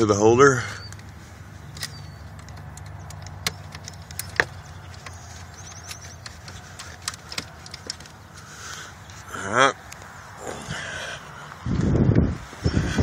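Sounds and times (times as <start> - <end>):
fuse clicks and taps: 1.8 - 8.2.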